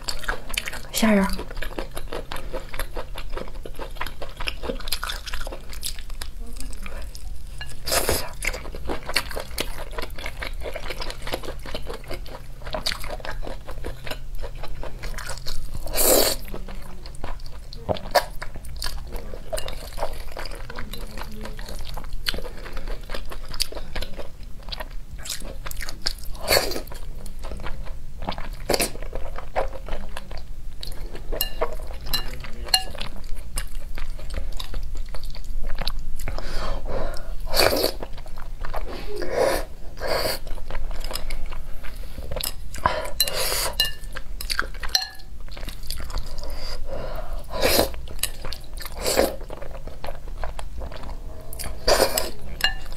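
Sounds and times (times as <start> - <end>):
chewing and crunching food: 0.0 - 39.2, 39.9 - 52.9.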